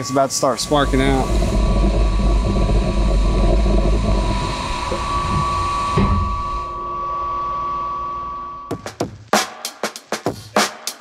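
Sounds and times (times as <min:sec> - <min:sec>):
coolant spraying hiss: 0:00.0 - 0:04.9
machine whine: 0:00.0 - 0:08.8
low rumble: 0:00.4 - 0:07.9.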